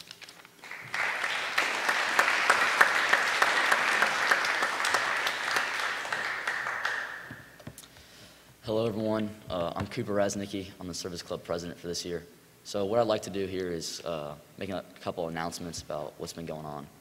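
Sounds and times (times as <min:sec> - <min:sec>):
audience applauding: 0:00.6 - 0:07.6.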